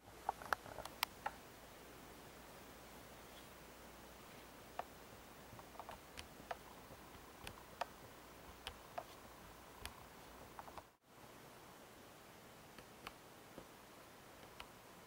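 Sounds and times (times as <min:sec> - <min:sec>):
faint room hiss: 0:00.0 - 0:15.0
small sharp clicks: 0:00.2 - 0:01.4.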